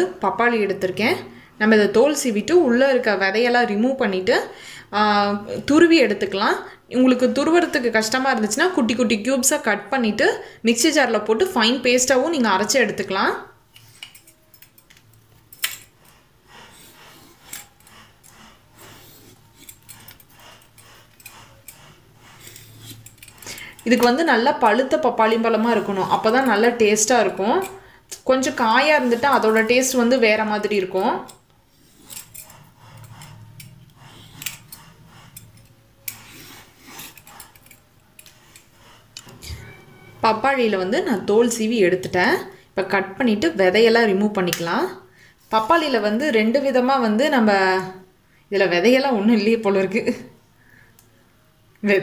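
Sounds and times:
peeler scraping fruit skin: 16.6s - 24.3s, 31.2s - 39.6s.

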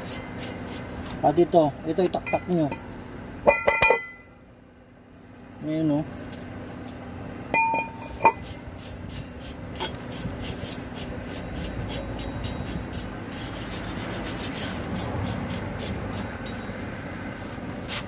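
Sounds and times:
brush scrubbing metal: 0.0s - 1.3s, 8.0s - 16.7s
metal brake drum clanking: 2.2s - 4.3s.

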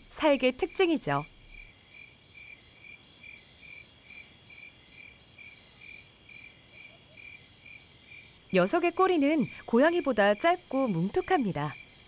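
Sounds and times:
cricket chirping: 0.0s - 12.0s.

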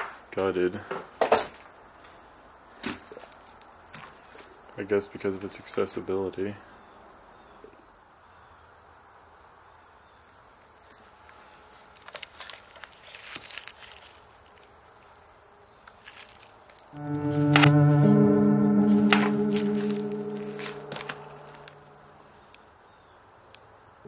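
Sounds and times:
high insect trill: 12.5s - 22.4s
loud music with held chords: 17.0s - 21.8s
footsteps: 17.1s - 22.1s.

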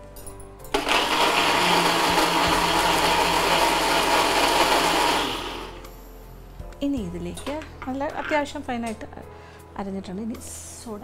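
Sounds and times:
electric blender running: 0.7s - 5.9s.

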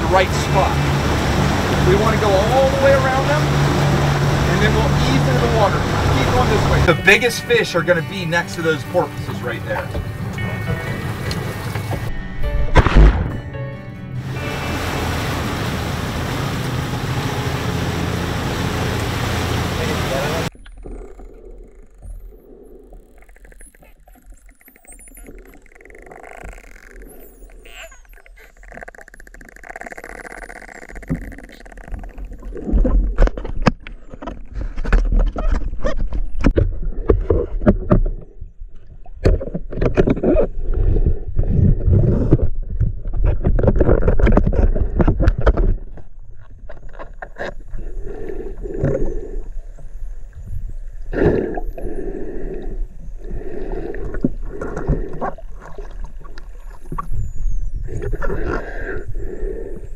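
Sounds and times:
dolphins clicking underwater: 19.8s - 34.7s
diver breathing: 20.8s - 23.5s, 47.7s - 50.2s, 51.1s - 55.8s, 57.8s - 59.9s
dolphin whistles: 24.4s - 31.6s.

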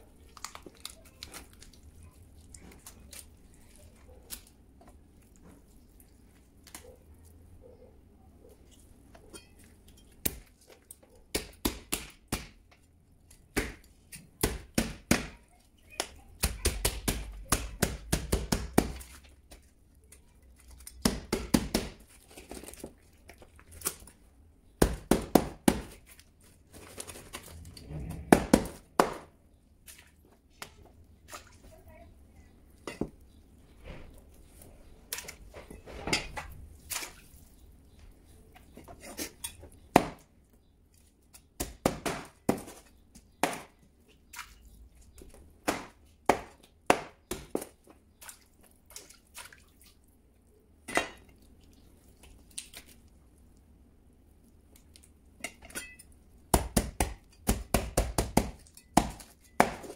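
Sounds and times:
faint handling of fish: 0.0s - 11.3s, 25.9s - 28.3s, 29.4s - 41.6s, 47.7s - 56.5s
cleaver chopping fish on plastic board: 13.5s - 15.4s, 16.0s - 19.1s, 21.0s - 22.0s, 24.8s - 26.0s, 56.5s - 59.9s.

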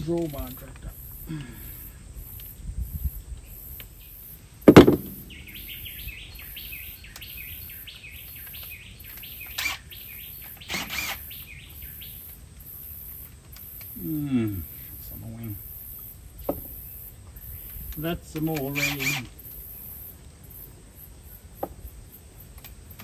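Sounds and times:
birds chirping: 0.0s - 22.3s
knocks: 4.7s - 5.4s.

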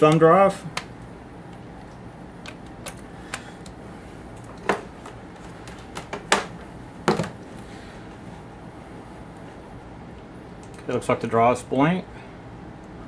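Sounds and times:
clicks and knocks of laptop handling: 4.6s - 7.4s.

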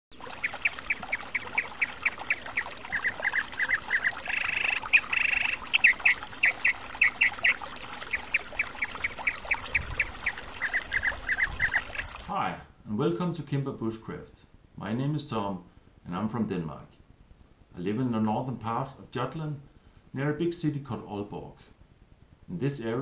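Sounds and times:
harsh buzzing bird call: 0.2s - 12.2s.

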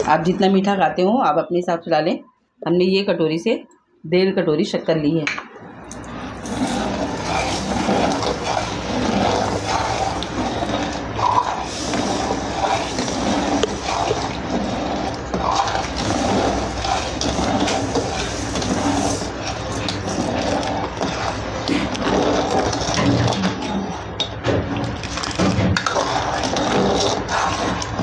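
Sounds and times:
liquid sloshing in a pot: 5.7s - 24.1s.

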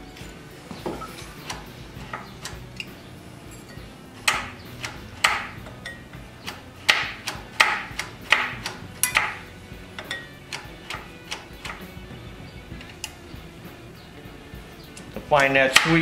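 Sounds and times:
metallic clicks and knocks: 3.6s - 12.0s.

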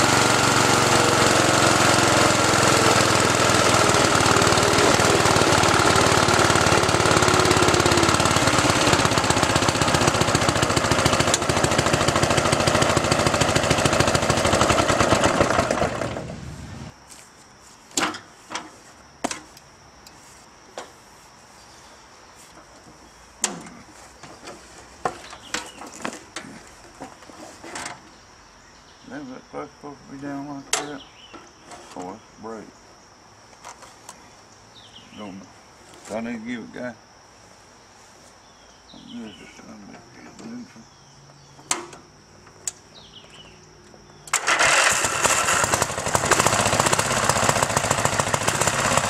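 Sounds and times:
lawnmower engine running: 0.0s - 16.9s, 44.2s - 49.0s
sharp clicks and knocks: 41.6s - 42.8s.

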